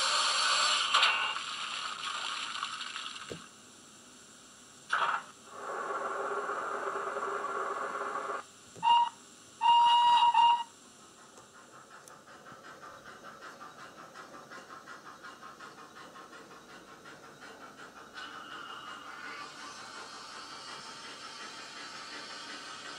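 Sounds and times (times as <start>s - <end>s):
hiss of steam: 0.0s - 2.0s, 5.4s - 22.9s
model train whistle: 8.8s - 10.7s
quick steady chuffing: 11.0s - 22.9s.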